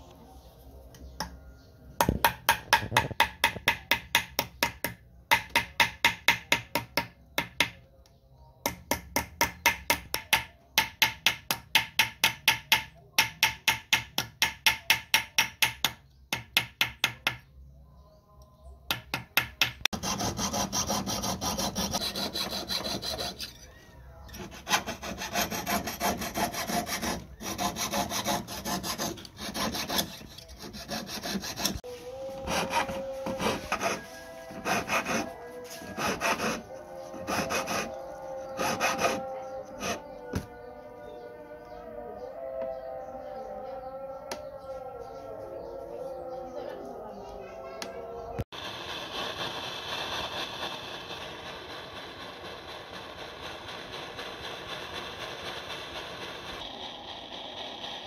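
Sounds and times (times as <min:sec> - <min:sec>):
file rasping on metal: 0:19.9 - 0:23.6, 0:24.3 - 0:40.1
saw cutting metal: 0:20.0 - 0:23.7, 0:24.3 - 0:40.1.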